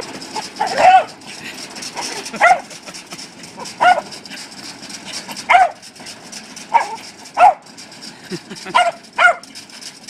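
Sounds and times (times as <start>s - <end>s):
dog barking: 0.6s - 1.1s, 2.4s - 2.7s, 3.8s - 4.1s, 5.5s - 5.8s, 6.7s - 7.7s, 8.7s - 9.5s.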